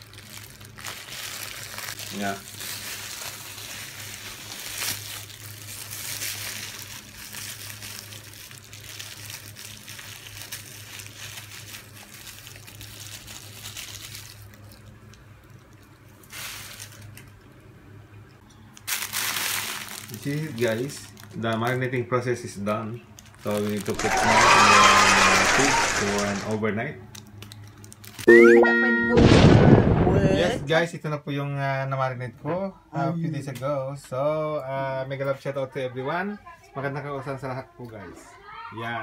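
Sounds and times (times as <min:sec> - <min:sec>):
plastic bag crinkling: 0:00.0 - 0:17.4, 0:18.7 - 0:21.8, 0:23.2 - 0:28.3.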